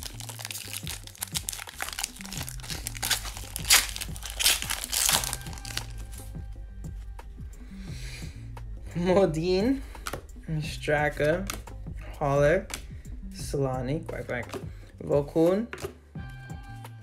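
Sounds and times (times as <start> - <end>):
foil wrapper crinkling: 0.0 - 5.9
background music with bass line: 0.0 - 17.0.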